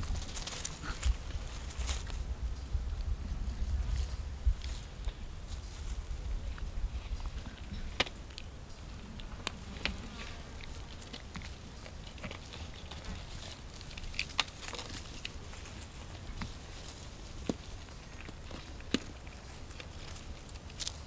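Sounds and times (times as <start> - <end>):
rustling in dry grass: 0.0 - 21.0
monkeys handling a book: 9.5 - 21.0.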